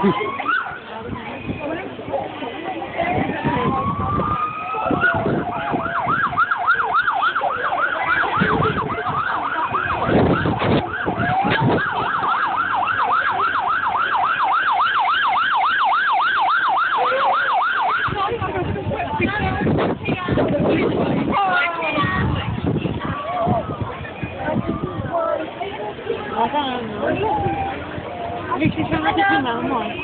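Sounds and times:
emergency vehicle siren yelping: 0.0s - 1.0s, 3.1s - 18.6s.

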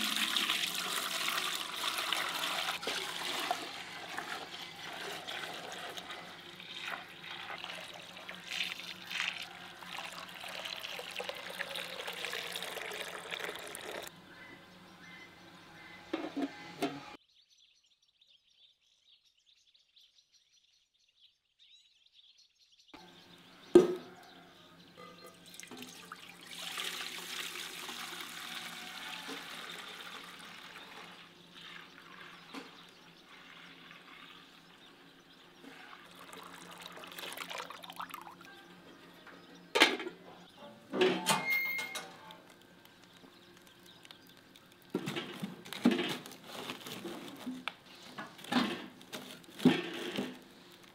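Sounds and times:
milk pouring and splashing: 0.0s - 14.1s, 25.5s - 34.7s, 35.6s - 38.5s, 42.4s - 47.6s.

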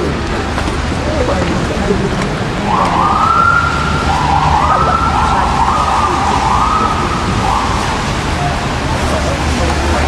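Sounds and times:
city traffic rumble: 0.0s - 10.0s
emergency siren wailing: 2.6s - 8.6s.

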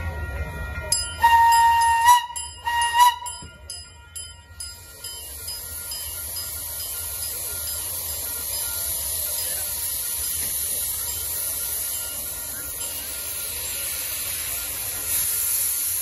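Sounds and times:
steam locomotive whistle: 1.0s - 3.6s
steam hissing: 4.4s - 16.0s.

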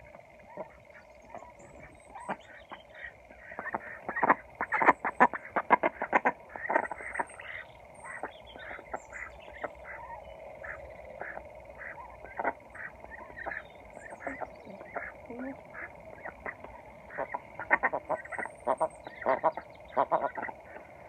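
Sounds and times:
ducks quacking softly: 0.0s - 21.0s.

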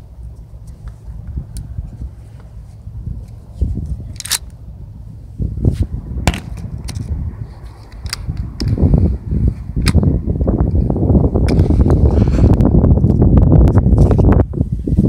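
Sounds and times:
wind rumbling on microphone: 0.0s - 15.0s
camera handling noise: 4.1s - 4.6s, 7.7s - 8.8s.

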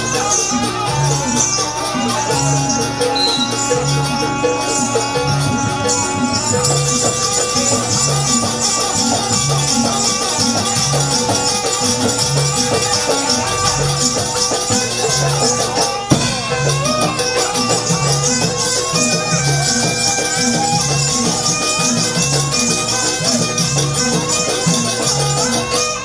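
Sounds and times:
gamelan music: 0.0s - 26.0s
jingling bells: 0.0s - 26.0s
drum and gong beat: 16.0s - 18.6s.

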